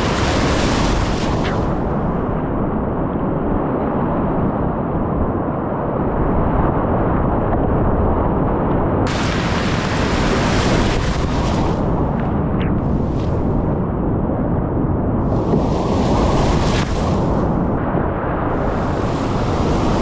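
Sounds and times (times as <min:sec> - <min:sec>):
whitewater rapids rushing: 0:09.1 - 0:11.8.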